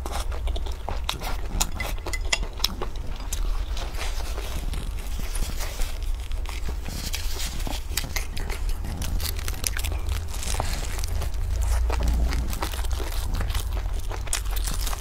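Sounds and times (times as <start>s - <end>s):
biting into bread: 0.0s - 15.0s
chewing: 0.0s - 15.0s
steady low hum: 0.0s - 15.0s
plastic bag crinkling: 1.1s - 15.0s.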